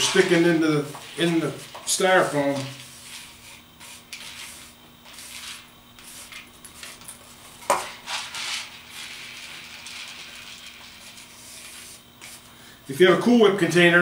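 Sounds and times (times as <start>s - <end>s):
rice trickling into glass jar: 8.3s - 11.8s.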